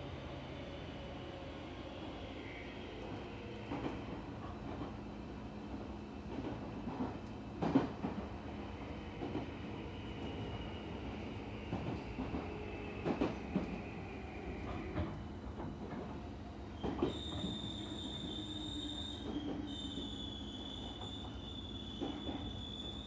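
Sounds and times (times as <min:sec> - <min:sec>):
high wheel squeal: 0:16.8 - 0:23.0.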